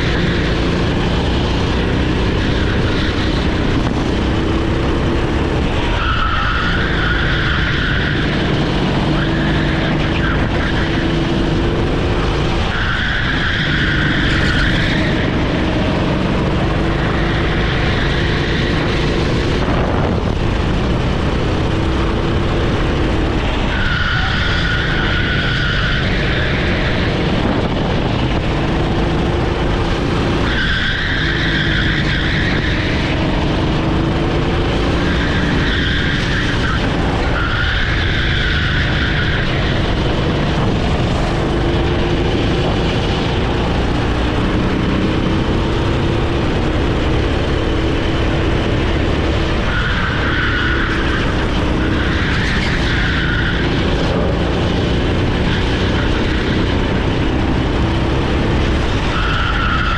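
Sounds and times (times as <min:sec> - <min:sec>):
kart engine accelerating: 0:00.0 - 0:59.9
tyres squealing: 0:04.4 - 0:19.5, 0:23.0 - 0:27.4, 0:30.4 - 0:43.4, 0:44.0 - 0:54.2, 0:58.3 - 0:59.9.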